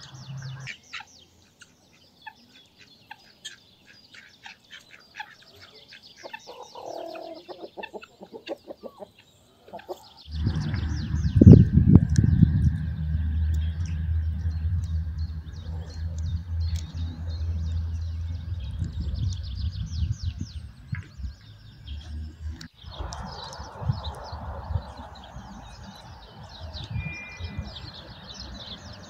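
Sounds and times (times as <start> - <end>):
small birds chirping: 0.0 - 29.0
steady low hum: 10.3 - 26.2.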